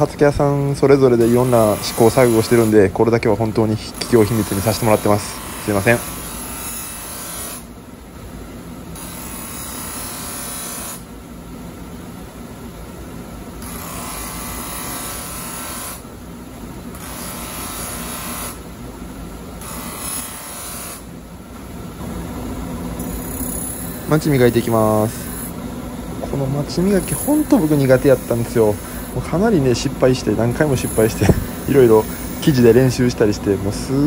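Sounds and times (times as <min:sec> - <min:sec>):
polishing machine hum: 0:01.2 - 0:02.7, 0:22.0 - 0:34.0
blade rubbing on buffing wheel: 0:26.8 - 0:32.9.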